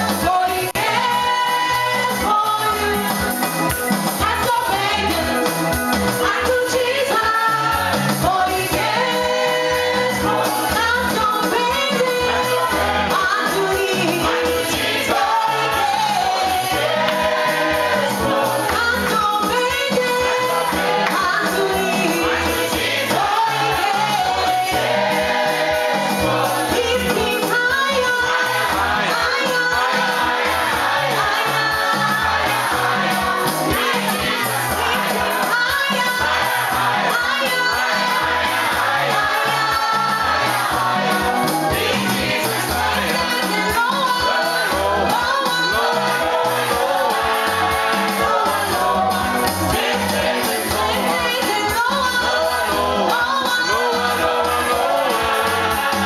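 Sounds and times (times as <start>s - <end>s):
congregation singing gospel song: 0.0s - 56.0s
steady beat: 11.5s - 53.1s.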